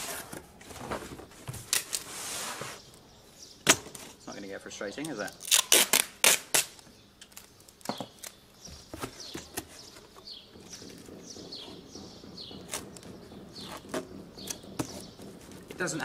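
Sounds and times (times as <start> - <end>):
cardboard and tape rustling: 0.0 - 3.0, 5.0 - 16.0
bird chirping: 2.6 - 5.7, 6.8 - 16.0.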